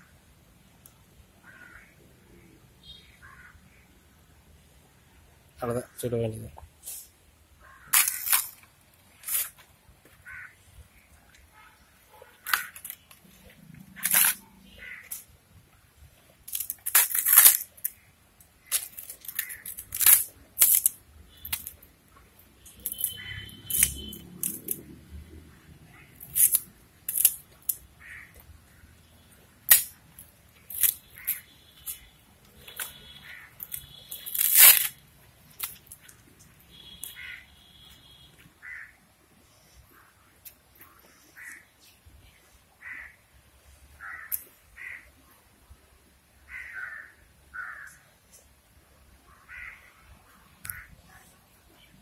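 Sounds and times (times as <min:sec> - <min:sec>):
dry palm fronds snapping: 0:07.9 - 0:09.6, 0:16.5 - 0:18.0, 0:18.6 - 0:21.8, 0:26.2 - 0:27.8, 0:29.7 - 0:30.0, 0:30.6 - 0:32.0, 0:33.6 - 0:36.2
bird calling: 0:36.8 - 0:37.6.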